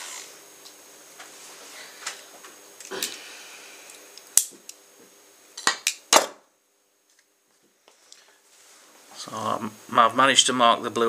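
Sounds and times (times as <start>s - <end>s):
rotary tool humming: 0.0s - 0.5s.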